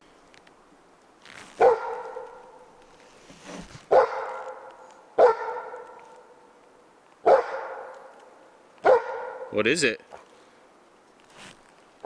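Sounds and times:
dog barking: 1.6 - 2.6, 3.9 - 6.4, 7.2 - 8.1, 8.8 - 9.6.

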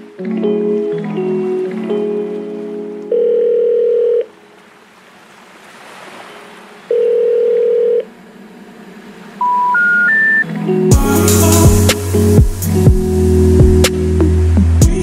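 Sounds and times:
higher telephone beep: 3.1 - 4.3, 6.9 - 8.0, 9.4 - 10.4
telephone ringback tone: 3.1 - 4.4, 6.9 - 8.1, 9.4 - 10.5.

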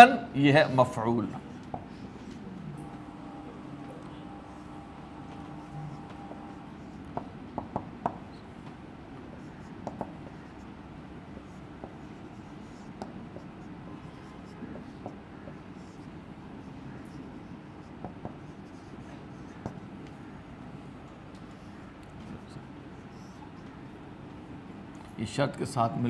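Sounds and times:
low room hum: 0.0 - 26.0
marker tapping on whiteboard: 1.3 - 2.0, 5.2 - 10.6, 11.4 - 13.6, 14.4 - 16.0, 17.9 - 20.3.

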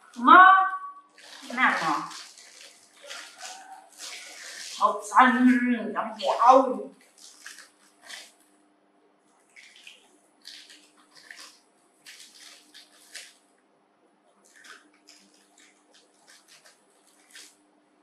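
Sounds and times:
dry noodles crunching: 1.1 - 5.1, 6.9 - 8.5, 9.3 - 13.5, 14.3 - 17.7.

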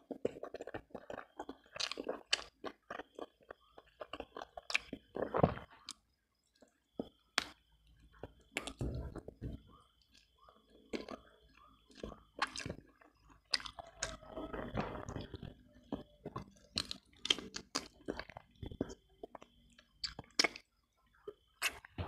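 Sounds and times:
wet chewing with lip smacks: 0.0 - 6.0, 10.1 - 20.7.

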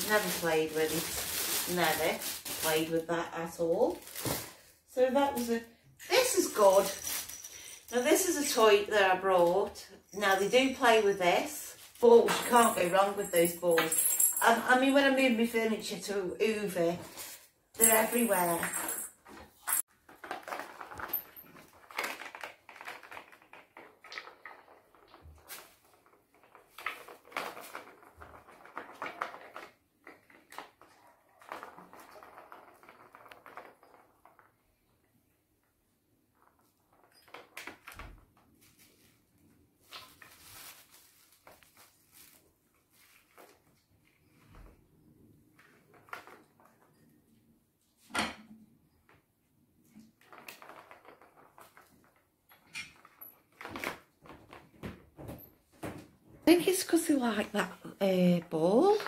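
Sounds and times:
balls rattling in plastic track: 20.0 - 34.9, 50.1 - 54.2, 56.5 - 59.0.

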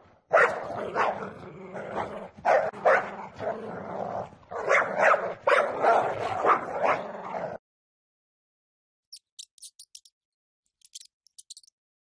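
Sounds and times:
dog barking: 0.3 - 3.6, 4.5 - 7.6.

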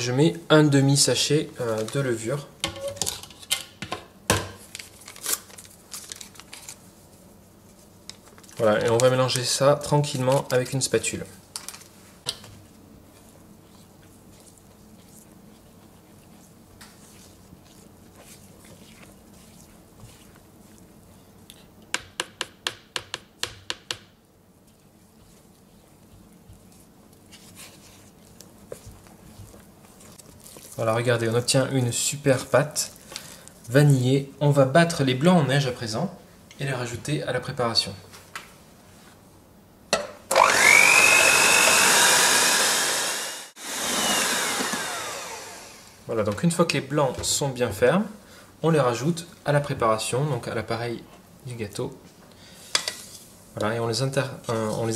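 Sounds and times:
spatula scraping batter in bowl: 12.6 - 21.8, 24.6 - 33.8
spatula knocking on bowl: 21.9 - 24.2
electric hand mixer whine: 40.3 - 46.0.

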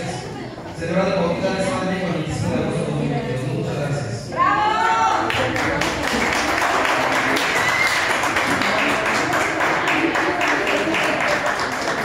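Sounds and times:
crowd noise: 0.0 - 12.0
handclaps: 5.3 - 12.0.

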